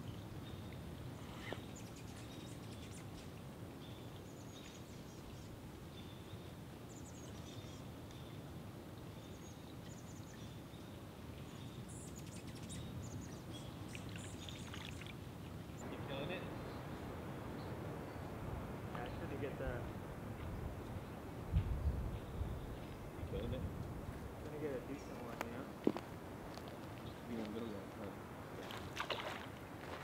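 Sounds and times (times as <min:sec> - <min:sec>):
small birds chirping: 0:00.0 - 0:29.5
outdoor background rush: 0:13.8 - 0:30.0.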